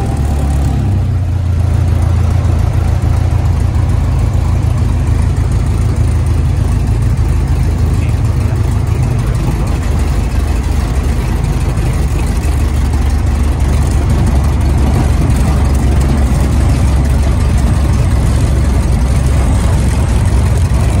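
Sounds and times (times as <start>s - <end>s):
light aircraft engine droning: 0.0s - 21.0s.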